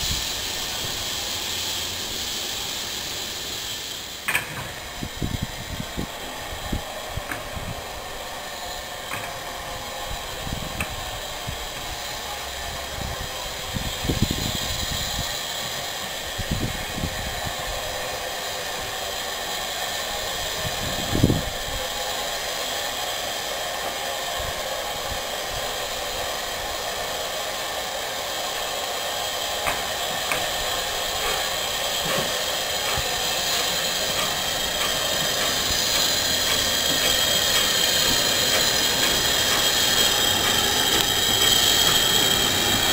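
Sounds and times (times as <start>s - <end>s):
steam hissing: 0.0s - 42.9s
locomotive clanks and knocks: 4.2s - 4.9s, 29.6s - 42.9s.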